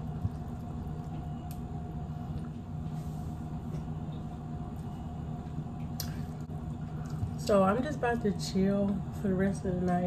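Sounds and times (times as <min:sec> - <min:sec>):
steady low hum: 0:00.0 - 0:10.0.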